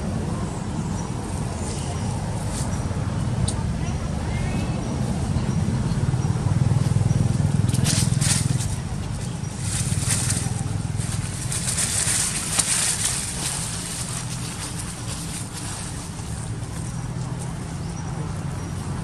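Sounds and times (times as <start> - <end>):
dry leaves rustling and crackling: 6.9 - 19.0.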